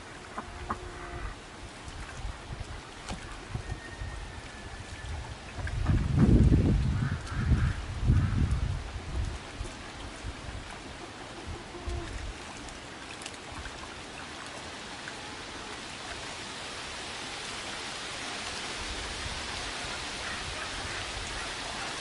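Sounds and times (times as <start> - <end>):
wind rumbling on microphone: 0.0 - 12.8
stream water flowing: 0.0 - 22.0.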